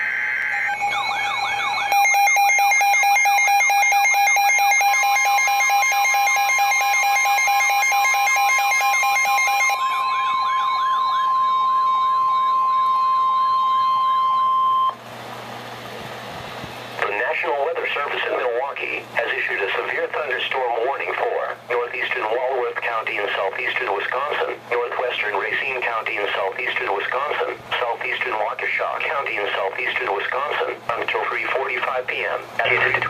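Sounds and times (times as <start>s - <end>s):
fast warbling siren: 0.0s - 15.0s
rapid pulsing beeps: 0.0s - 15.0s
steady warning tone: 0.0s - 15.0s, 17.0s - 33.0s.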